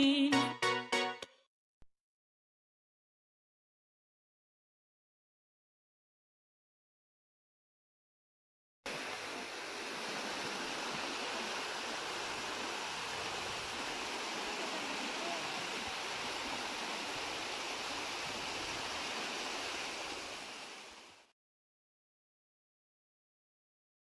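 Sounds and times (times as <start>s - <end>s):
water rushing over rocks: 8.9s - 21.3s.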